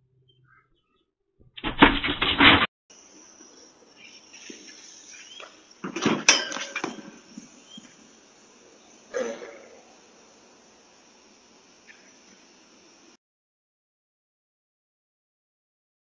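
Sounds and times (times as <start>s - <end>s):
high microphone hiss: 2.9s - 13.2s.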